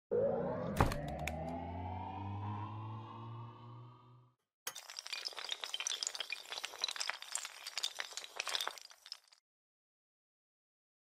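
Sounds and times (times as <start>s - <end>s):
rising synth tone: 0.0s - 4.4s
low drone: 0.1s - 4.4s.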